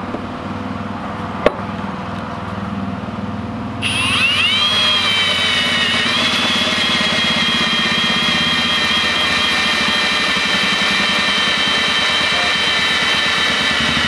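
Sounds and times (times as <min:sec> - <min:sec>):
cordless drill motor whine: 0:03.8 - 0:14.0
hole saw chattering through plastic: 0:03.9 - 0:14.0.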